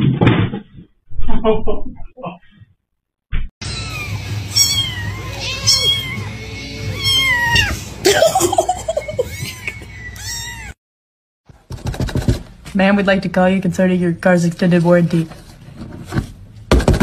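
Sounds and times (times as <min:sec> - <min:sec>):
kitten mewing: 0:03.6 - 0:07.9, 0:09.2 - 0:10.8.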